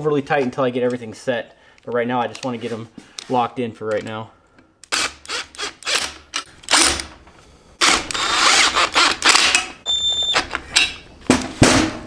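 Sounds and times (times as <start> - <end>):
cordless impact driver running: 7.8 - 9.7.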